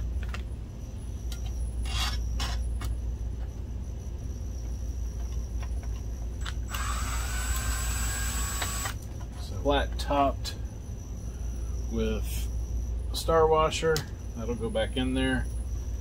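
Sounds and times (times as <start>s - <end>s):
cordless drill motor whining: 6.4s - 9.0s
drill bit clicks: 6.4s - 9.0s.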